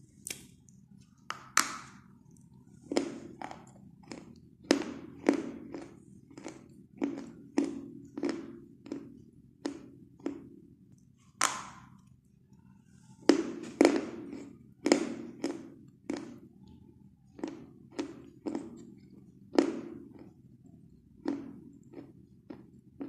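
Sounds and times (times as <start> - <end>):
chalk crunching while chewed: 2.3 - 11.1, 13.6 - 16.4, 17.4 - 20.4.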